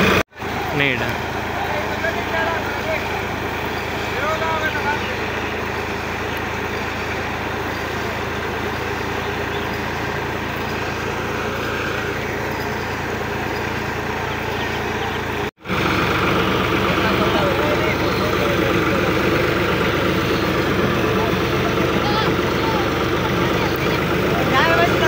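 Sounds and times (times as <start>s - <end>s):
tractor diesel engine running: 0.0s - 25.0s.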